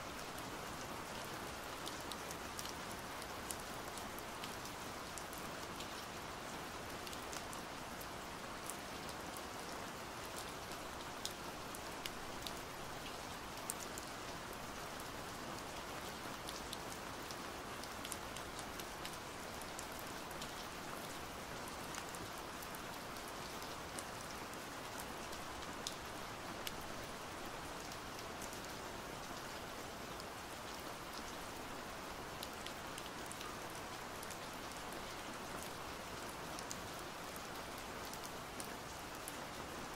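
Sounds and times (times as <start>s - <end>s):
steady pouring rain: 0.0s - 39.9s
raindrops ticking close by: 10.2s - 39.9s.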